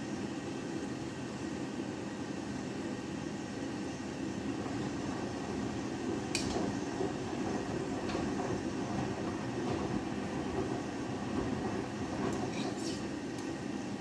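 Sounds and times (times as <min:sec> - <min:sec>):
washing machine churning water: 0:04.2 - 0:14.0.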